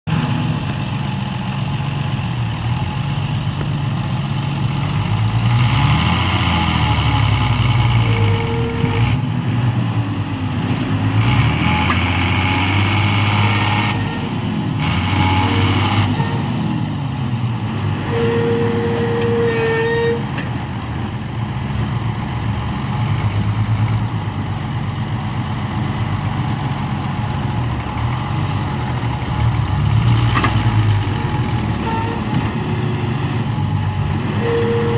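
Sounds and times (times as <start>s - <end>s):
tractor engines revving under load: 0.1s - 34.9s
short steady tone: 18.1s - 20.2s, 34.3s - 34.9s.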